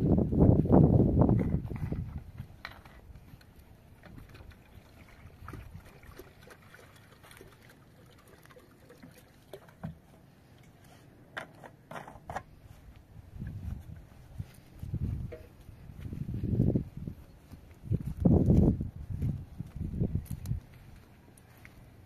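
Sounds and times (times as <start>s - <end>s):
water pouring into plastic jug: 4.0s - 10.1s.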